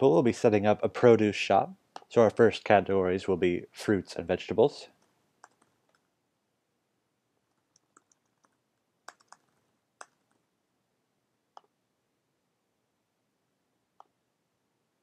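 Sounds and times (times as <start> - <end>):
mouse clicks: 7.5 - 10.4, 11.5 - 11.8, 14.0 - 14.2
keyboard keystrokes: 7.7 - 10.2.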